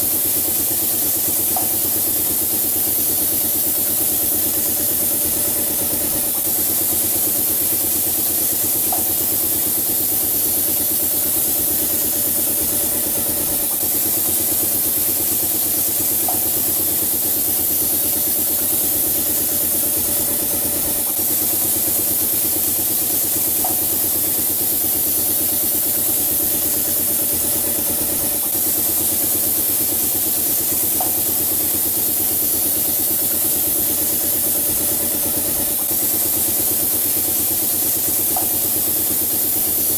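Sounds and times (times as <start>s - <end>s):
air compressor running: 0.0s - 39.9s
spray gun air hiss: 0.0s - 39.9s.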